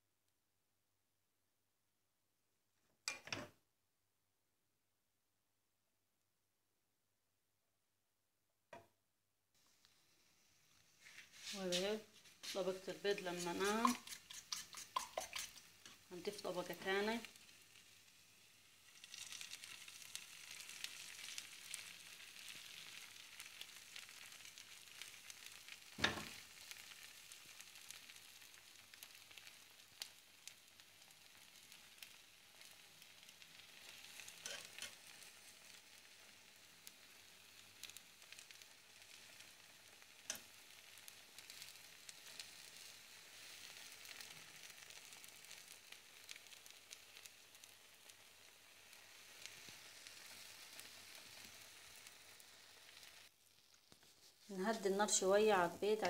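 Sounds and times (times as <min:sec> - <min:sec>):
omelette sizzling in pan: 0:09.6 - 0:56.0.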